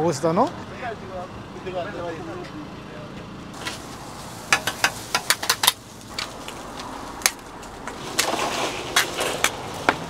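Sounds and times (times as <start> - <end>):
cooking utensils clacking: 4.5 - 5.8.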